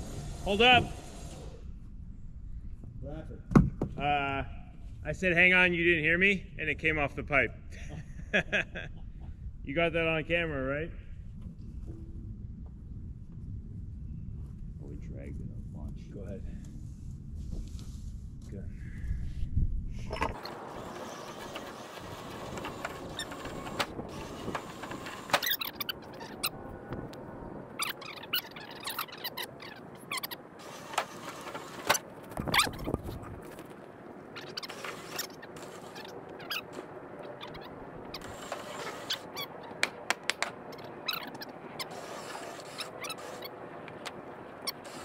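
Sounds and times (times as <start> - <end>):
rollers clicking and squeaking: 20.3 - 27.0, 27.7 - 45.0.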